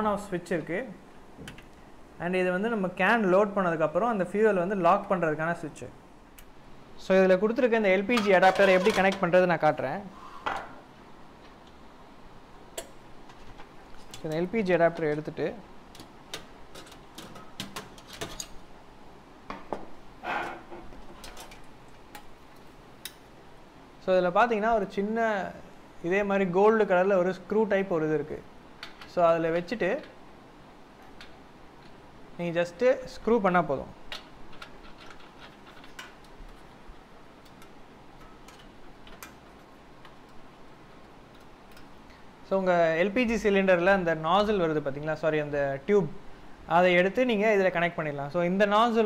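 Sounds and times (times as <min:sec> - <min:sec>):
metal scrape: 0:08.2 - 0:09.2.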